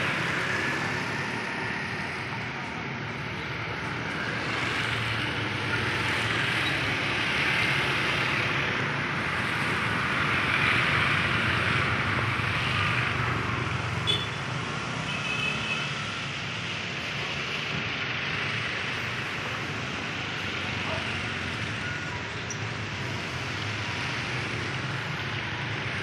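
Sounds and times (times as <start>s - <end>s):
vehicles passing on wet road: 0.0s - 26.0s.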